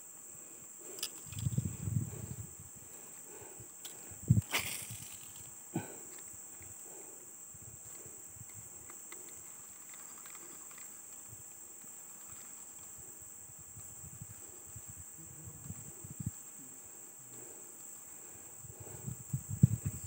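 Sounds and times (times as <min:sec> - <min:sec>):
insect chorus drone: 0:00.0 - 0:20.0.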